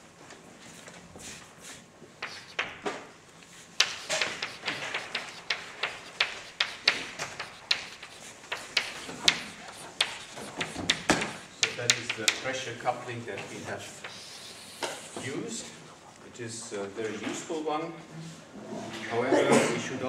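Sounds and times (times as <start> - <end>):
chalk tapping and scratching: 0.7 - 16.1.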